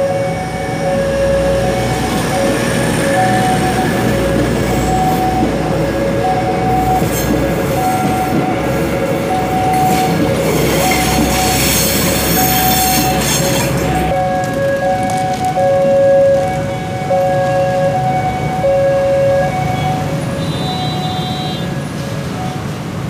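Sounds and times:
two-tone crossing alarm: 0:00.0 - 0:21.8
train wheels rumbling: 0:00.0 - 0:23.0
high wheel squeal: 0:06.3 - 0:14.2, 0:19.6 - 0:22.7.

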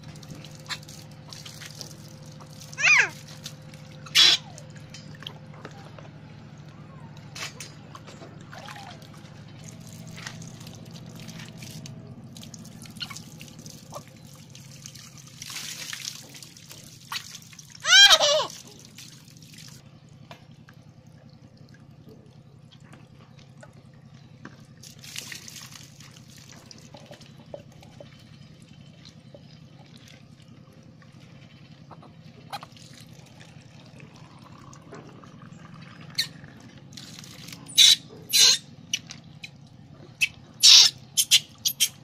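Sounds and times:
water pouring and splashing: 0:00.0 - 0:05.8, 0:07.5 - 0:19.8, 0:20.4 - 0:37.9
low steady hum: 0:00.0 - 0:42.0
monkey squealing: 0:02.8 - 0:03.2, 0:04.0 - 0:04.7, 0:17.8 - 0:18.8, 0:37.6 - 0:39.1, 0:40.2 - 0:42.0.

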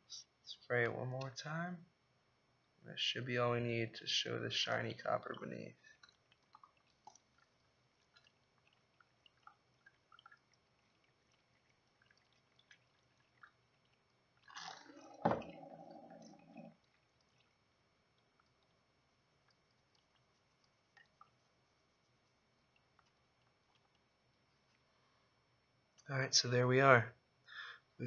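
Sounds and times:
liquid dripping and splashing: 0:05.0 - 0:25.0.

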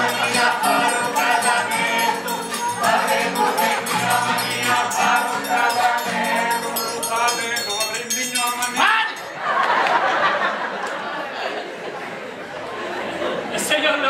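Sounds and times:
cast singing in chorus: 0:00.0 - 0:07.3
live instrumental accompaniment: 0:00.0 - 0:09.4
percussion: 0:00.0 - 0:09.4.

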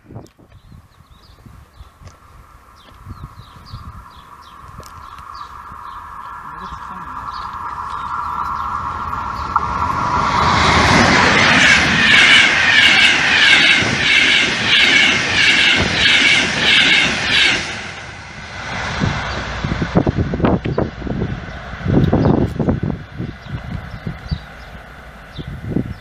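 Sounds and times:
electric train passing at speed: 0:00.6 - 0:26.0
train wheels clattering rhythmically: 0:11.4 - 0:18.0.

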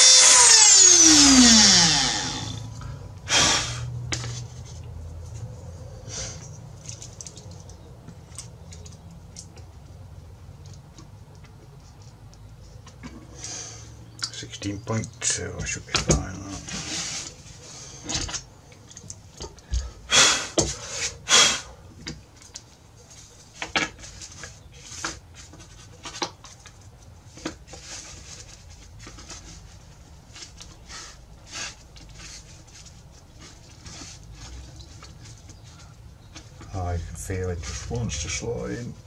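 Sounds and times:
wood scraping and rubbing: 0:00.0 - 0:02.7, 0:12.7 - 0:19.6, 0:23.0 - 0:39.0.

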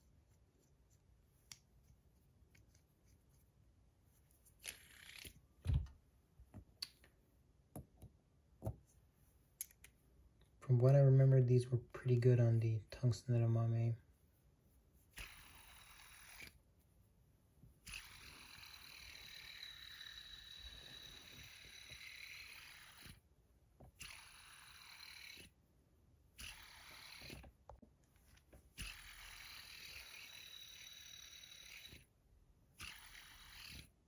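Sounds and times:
fidget spinner whirring: 0:04.5 - 0:05.4, 0:15.0 - 0:16.6, 0:17.8 - 0:23.2, 0:23.9 - 0:25.6, 0:26.4 - 0:27.5, 0:28.7 - 0:32.1, 0:32.8 - 0:34.0.

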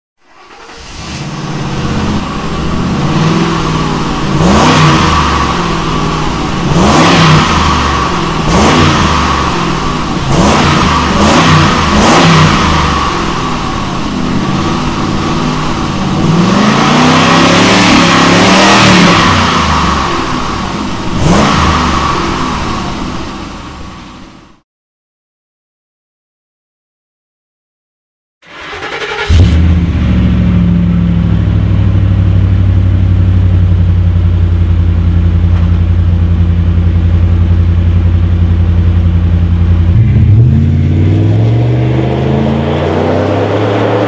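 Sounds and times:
car engine revving: 0:00.3 - 0:24.0, 0:28.5 - 0:44.0.

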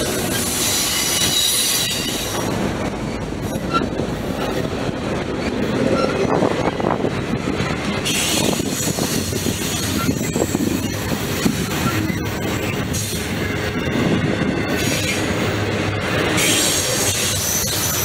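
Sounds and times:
train wheels rumbling on rails: 0:00.0 - 0:18.0
high-pitched wheel squeal: 0:00.3 - 0:02.4, 0:05.8 - 0:06.4, 0:08.0 - 0:13.4.

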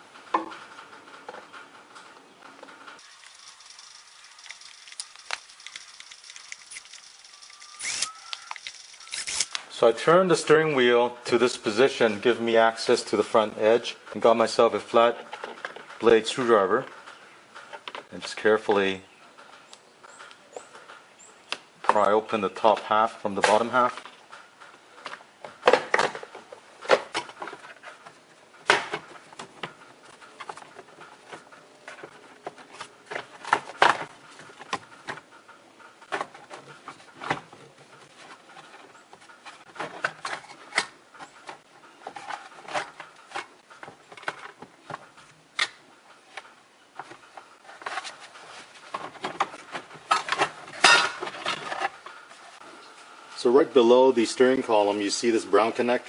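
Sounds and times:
soft plastic rubbing: 0:36.0 - 0:45.3, 0:46.2 - 0:53.1.

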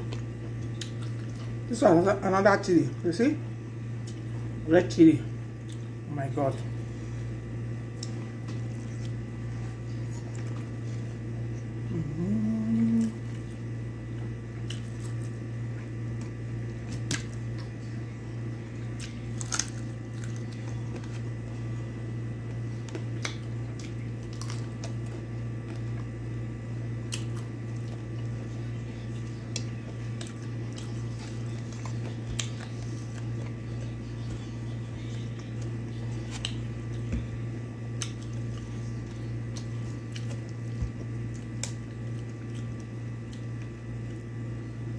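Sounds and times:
wet chewing and lip-smacking: 0:00.0 - 0:01.7, 0:04.0 - 0:04.5, 0:05.6 - 0:06.0, 0:07.9 - 0:17.9, 0:22.4 - 0:26.1, 0:27.0 - 0:44.3
steady low hum: 0:00.0 - 0:44.9
person humming mmm: 0:11.8 - 0:13.4.

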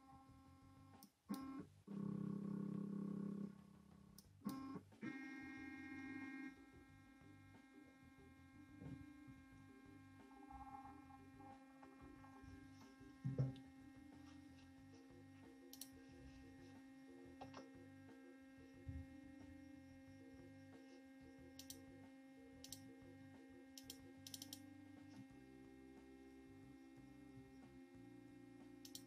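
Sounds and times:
knock: 0:13.2 - 0:13.6
light clicks: 0:23.8 - 0:24.6.

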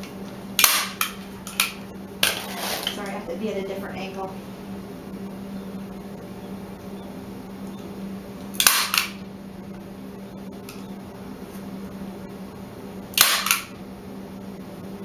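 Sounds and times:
staple gun firing: 0:00.6 - 0:01.8, 0:08.6 - 0:09.2, 0:13.2 - 0:13.7.

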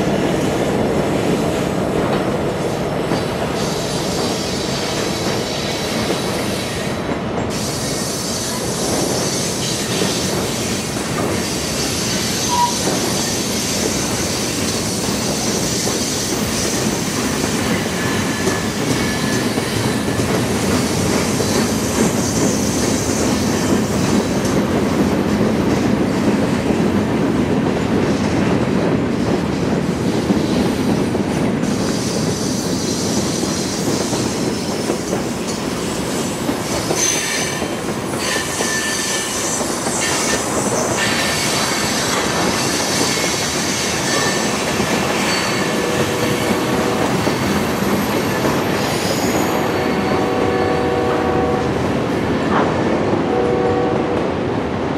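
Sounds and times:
freight train rolling on rails: 0:00.0 - 0:54.9
high wheel squeal: 0:11.4 - 0:14.2, 0:36.9 - 0:50.3.

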